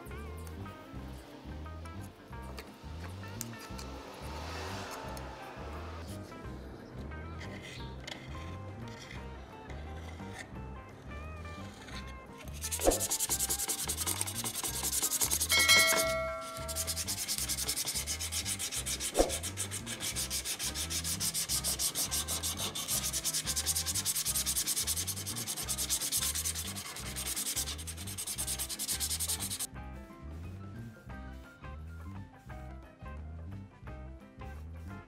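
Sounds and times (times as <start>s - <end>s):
sandpaper scraping on metal: 12.6s - 29.7s
short metallic ding: 15.5s - 16.8s.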